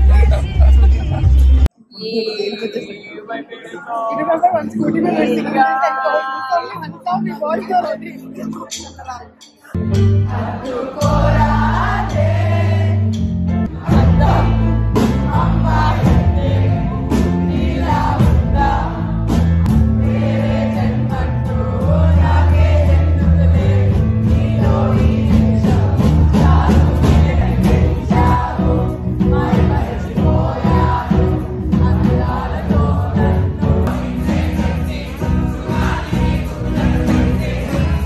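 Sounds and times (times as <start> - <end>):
live band playing: 0.0 - 2.9, 4.2 - 38.0
audience singing along: 9.7 - 38.0.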